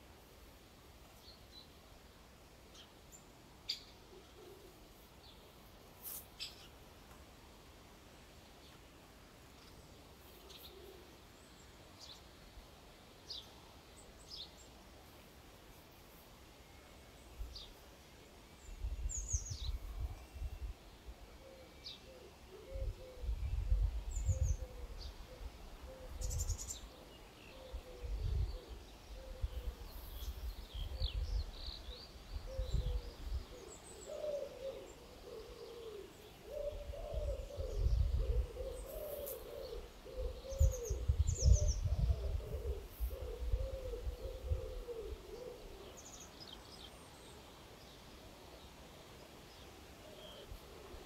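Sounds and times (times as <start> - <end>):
small birds chirping: 2.7 - 7.2, 26.0 - 48.8
dove cooing: 4.1 - 4.8, 10.4 - 11.1, 21.4 - 26.4, 27.5 - 29.9, 32.5 - 46.0
wind buffeting microphone: 36.6 - 38.7, 40.5 - 44.7.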